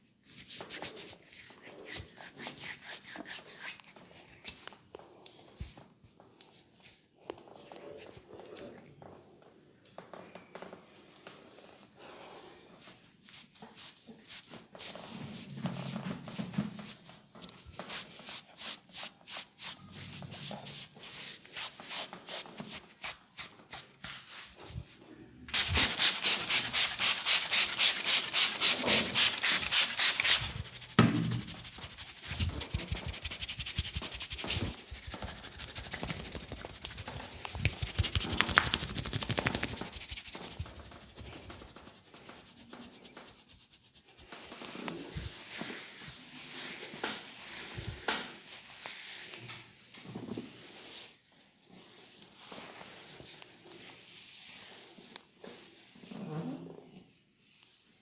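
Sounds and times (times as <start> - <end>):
hands rubbing skin and hair: 0.3 - 8.2, 12.8 - 49.4.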